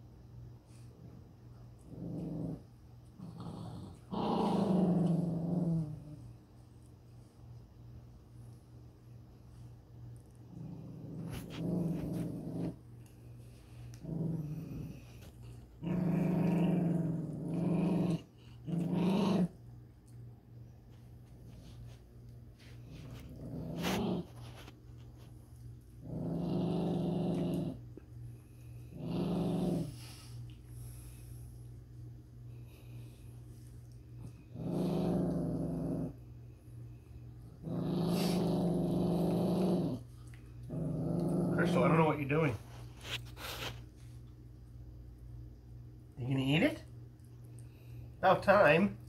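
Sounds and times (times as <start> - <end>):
dog growling low: 0.7 - 6.4, 10.3 - 20.2, 22.6 - 31.5, 32.5 - 36.4, 37.4 - 43.7.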